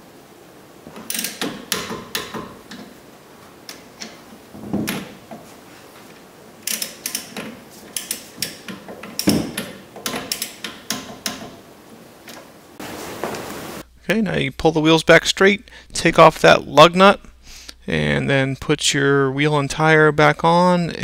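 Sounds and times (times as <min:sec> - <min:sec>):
torque wrench ratchet clicking: 0:06.6 - 0:07.3
heavy knocks: 0:08.7 - 0:11.6.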